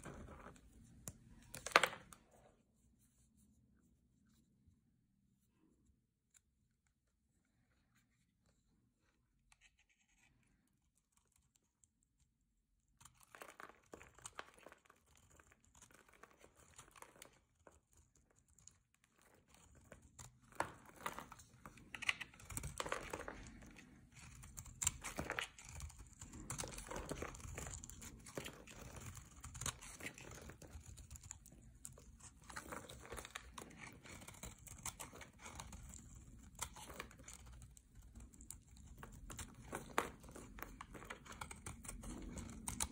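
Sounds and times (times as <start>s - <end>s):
blade scraping soap: 18.5s - 42.9s.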